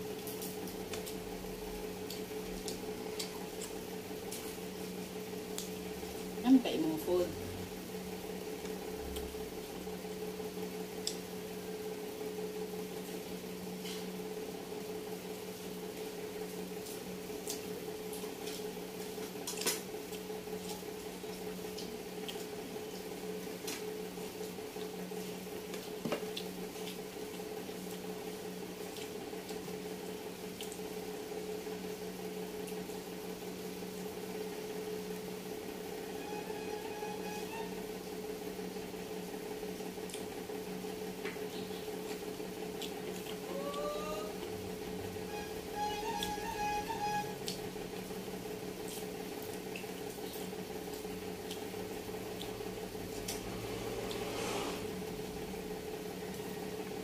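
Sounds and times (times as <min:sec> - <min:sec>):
electrical hum: 0:00.0 - 0:57.0
wet chewing: 0:02.0 - 0:04.6, 0:25.7 - 0:28.1, 0:28.7 - 0:30.9, 0:40.0 - 0:40.3, 0:41.4 - 0:43.5, 0:48.8 - 0:53.5.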